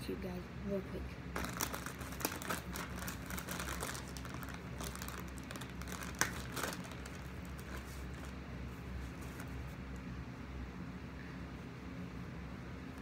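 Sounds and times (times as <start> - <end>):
wet wipe rustling: 1.4 - 9.9.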